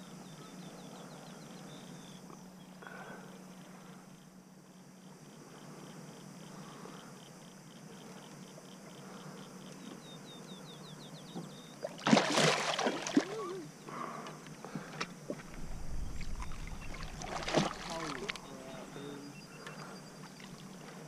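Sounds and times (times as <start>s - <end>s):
fish striking water splash: 12.0s - 13.3s, 16.2s - 18.5s.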